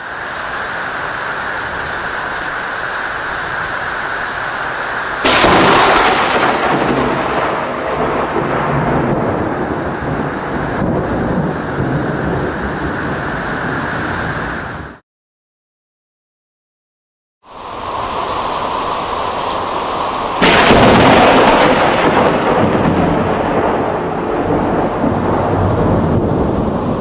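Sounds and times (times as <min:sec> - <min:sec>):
heavy rain hissing: 0:00.0 - 0:15.0, 0:17.4 - 0:27.0
thunder crack and rumble: 0:05.2 - 0:15.0, 0:20.4 - 0:27.0.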